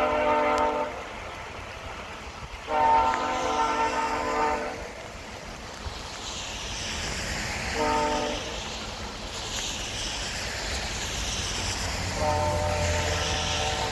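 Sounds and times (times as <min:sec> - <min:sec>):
distant train horn: 0:00.0 - 0:01.3, 0:02.6 - 0:05.0, 0:07.8 - 0:08.6, 0:12.0 - 0:13.9
steady rushing noise: 0:00.0 - 0:13.9.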